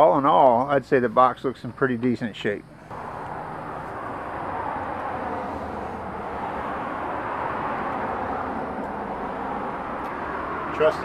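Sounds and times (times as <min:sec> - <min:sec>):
road traffic rushing: 0:02.6 - 0:11.0.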